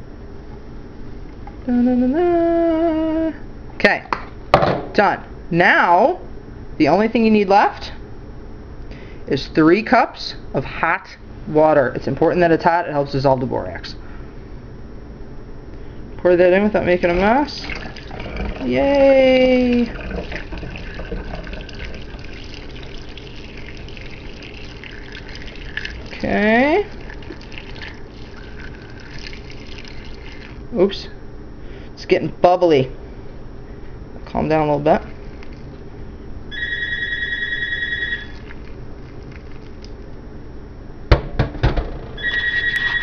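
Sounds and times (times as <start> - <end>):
water pouring through funnel: 16.8 - 30.7, 35.0 - 35.7, 36.7 - 40.1
electronic ringer trilling: 36.5 - 38.4, 42.2 - 43.0.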